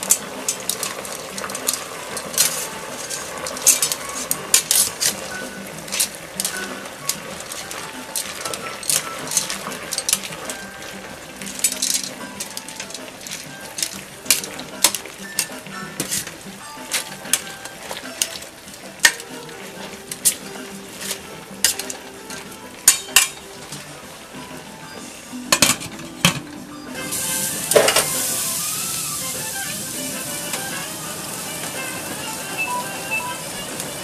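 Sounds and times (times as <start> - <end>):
metal tongs clinking against pot: 0.0 - 23.8, 25.5 - 28.4
pot boiling hiss: 0.0 - 34.0.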